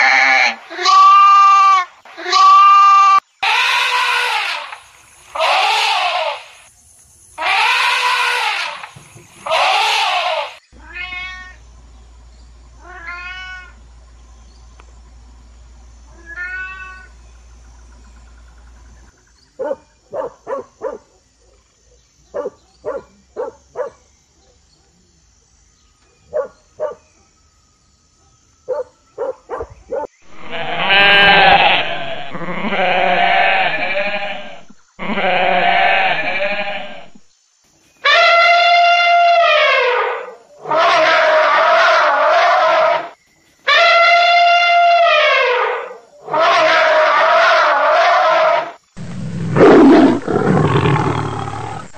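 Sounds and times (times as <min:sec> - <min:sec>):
loud animal cries: 0:00.0 - 0:06.6, 0:07.4 - 0:11.6, 0:12.8 - 0:13.8, 0:16.1 - 0:17.1, 0:30.3 - 0:37.2, 0:38.0 - 0:51.9
rising-and-falling animal calls: 0:00.0 - 0:06.6, 0:07.4 - 0:11.6, 0:30.3 - 0:37.2, 0:38.1 - 0:51.9
goats bleating: 0:30.3 - 0:37.1.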